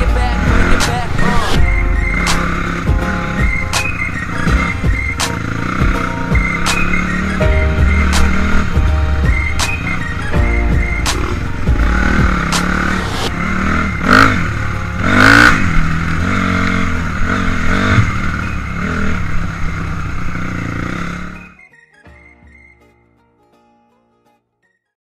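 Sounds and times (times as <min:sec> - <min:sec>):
music: 0:00.0 - 0:16.3, 0:21.0 - 0:25.0
dirt bike engine revving: 0:00.0 - 0:21.6.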